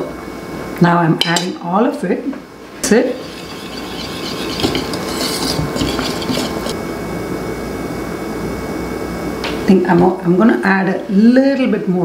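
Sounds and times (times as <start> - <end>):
whisk scraping batter in bowl: 2.8 - 6.8.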